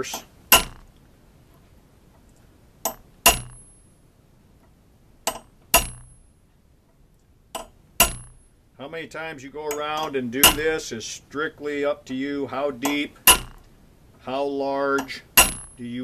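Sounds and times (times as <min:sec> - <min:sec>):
hammer striking steel punch: 0:00.0 - 0:00.9, 0:02.8 - 0:03.7, 0:05.3 - 0:06.2, 0:07.6 - 0:08.4, 0:09.7 - 0:10.8, 0:12.8 - 0:13.7, 0:15.0 - 0:15.8.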